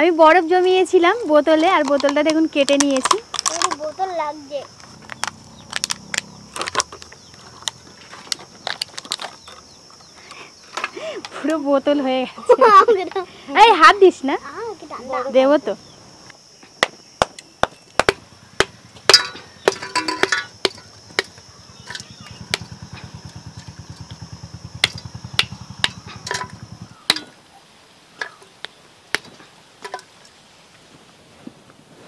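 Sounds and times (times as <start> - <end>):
ice cracking: 2.8 - 4.0
ice chunks dropping into metal pot: 19.1 - 22.7, 25.8 - 27.4, 28.2 - 30.2.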